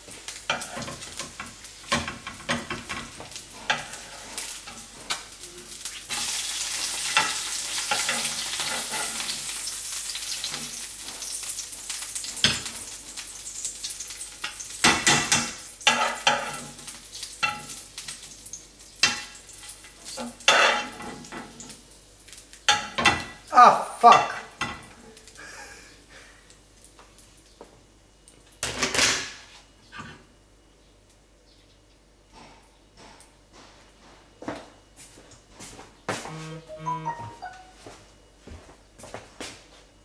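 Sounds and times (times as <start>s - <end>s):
eggs sizzling in a frying pan: 0.0s - 29.1s
metal spoon scraping a pan: 0.5s - 5.4s, 6.1s - 9.7s, 14.4s - 17.8s, 19.0s - 21.7s.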